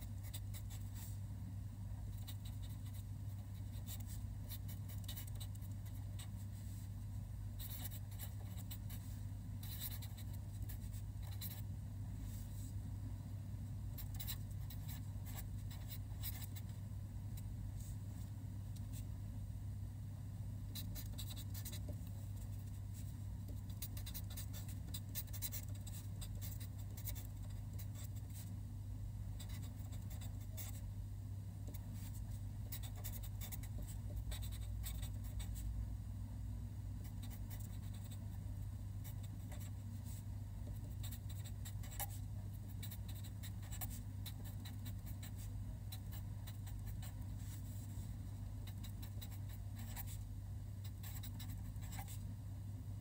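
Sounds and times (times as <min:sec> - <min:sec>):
steady low hum: 0:00.0 - 0:53.0
marker pen writing on paper: 0:03.7 - 0:06.3, 0:07.6 - 0:08.9, 0:09.6 - 0:11.6, 0:14.0 - 0:16.6, 0:20.8 - 0:22.0, 0:23.6 - 0:28.1, 0:32.7 - 0:35.4, 0:48.6 - 0:50.2, 0:50.8 - 0:52.2.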